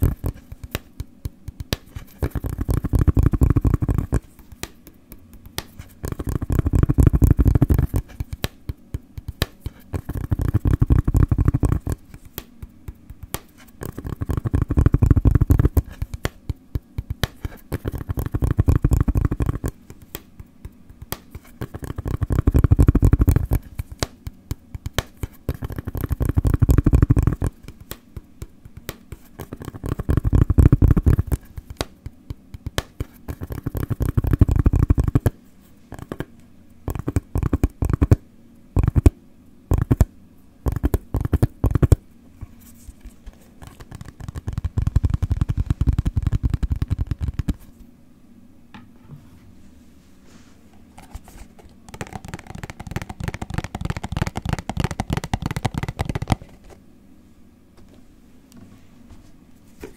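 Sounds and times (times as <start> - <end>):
rhythmic tapping: 0.0 - 35.3, 36.9 - 38.2, 51.9 - 56.5.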